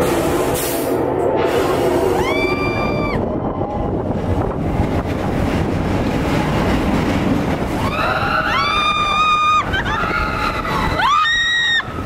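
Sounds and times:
roller coaster rumbling on track: 0.0 - 12.0
wind rushing: 0.0 - 12.0
rider screaming: 7.8 - 12.0.

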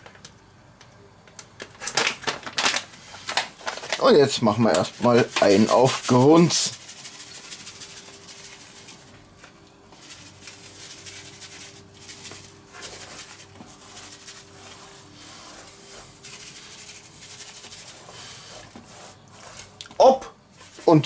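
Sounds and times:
faint steady hum: 0.0 - 21.0
spice granules falling: 1.4 - 19.8
paper bag rustling: 1.8 - 19.8
hand rubbing seasoning into meat: 4.0 - 9.2, 9.9 - 21.0.

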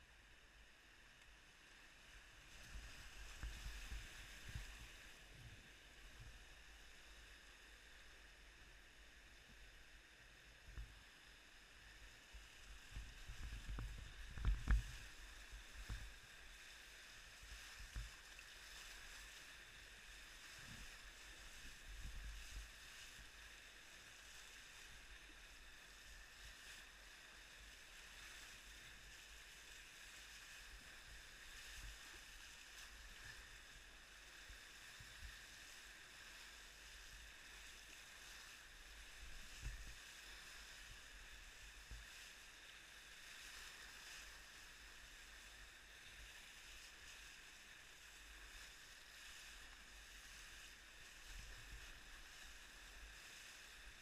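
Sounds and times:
whitewater hiss: 1.5 - 54.0
water thumping against boat: 13.0 - 16.2.

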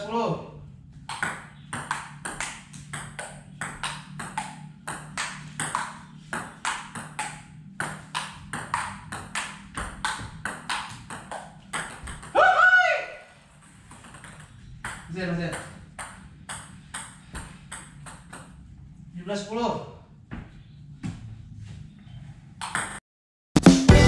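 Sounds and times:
table tennis ball clicking: 1.1 - 12.3
short loud shout: 12.4 - 13.3.

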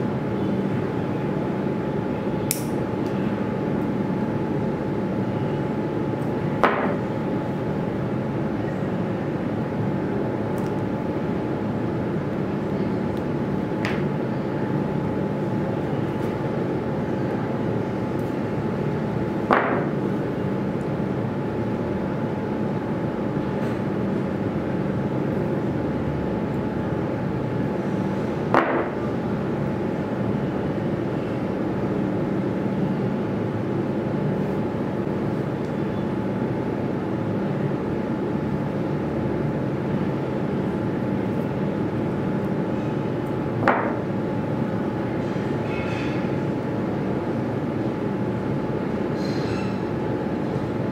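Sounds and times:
steady mechanical hum: 0.0 - 50.9.

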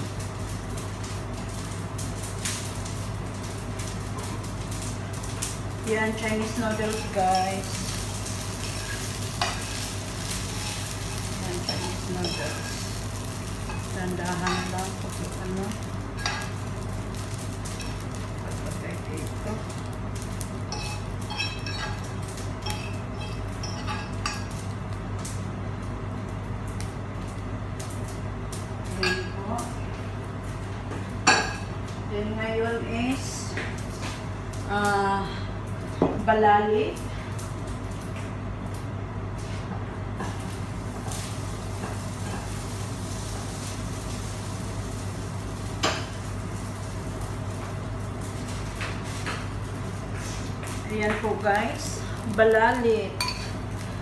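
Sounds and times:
kitchen appliance humming: 0.0 - 54.0
utensil scraping frying pan: 6.1 - 19.4, 20.6 - 24.6
cookware clattering: 53.2 - 53.6.

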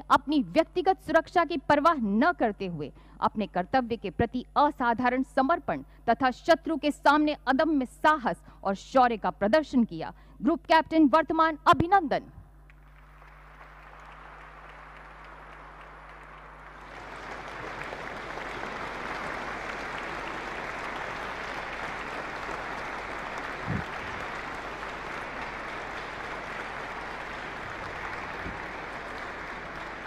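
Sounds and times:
audience applauding: 12.8 - 30.0.

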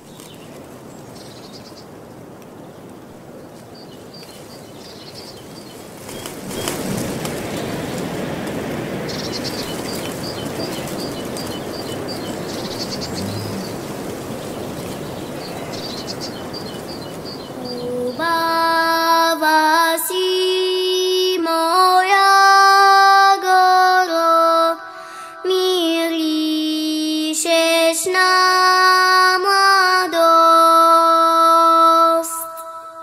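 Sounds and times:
outdoor rustling noise: 0.0 - 24.7
small bird calling: 9.1 - 18.3
high singing voice: 17.5 - 33.0.

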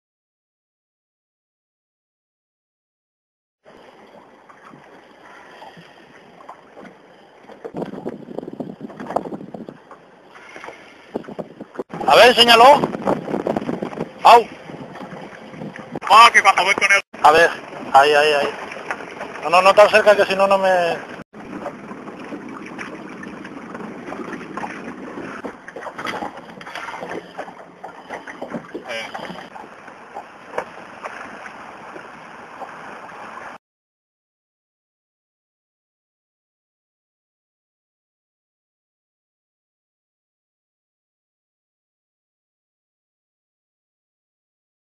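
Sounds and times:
water lapping and splashing: 3.6 - 33.6.

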